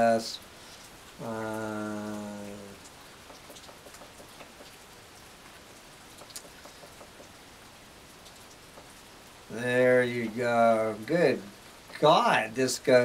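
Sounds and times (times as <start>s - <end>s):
steady rain falling: 0.0s - 13.0s
man humming: 1.2s - 2.8s.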